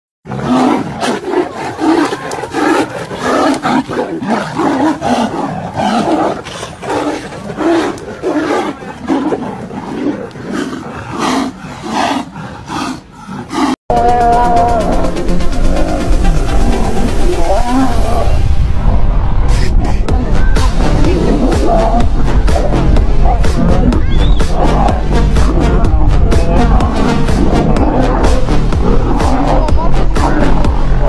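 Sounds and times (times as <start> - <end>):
big cats roaring while fighting: 0.3 - 18.3, 20.9 - 31.0
music: 13.9 - 31.0.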